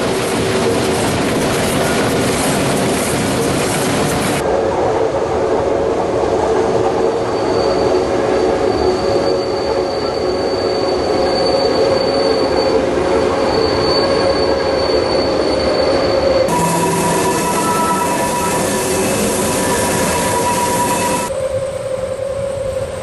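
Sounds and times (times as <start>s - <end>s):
train running noise: 0.0s - 23.0s
train wheels squealing: 6.7s - 23.0s.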